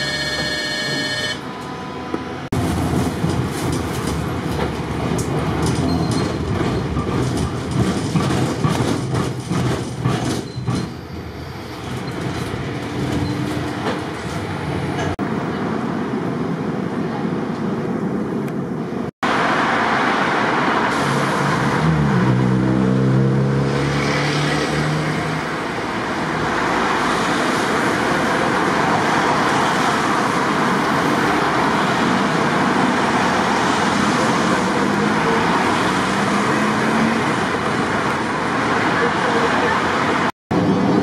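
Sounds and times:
tram motor whine rising: 0.0s - 2.7s
tram wheels on tracks: 0.0s - 23.2s, 24.0s - 41.0s
street traffic: 0.0s - 41.0s.

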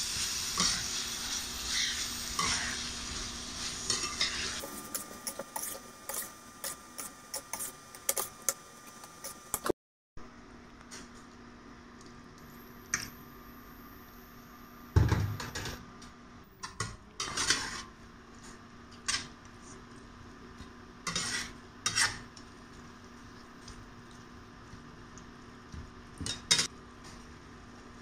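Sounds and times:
metal spatula scraping frying pan: 0.6s - 2.9s, 3.8s - 8.6s, 17.2s - 17.9s, 21.1s - 22.2s.

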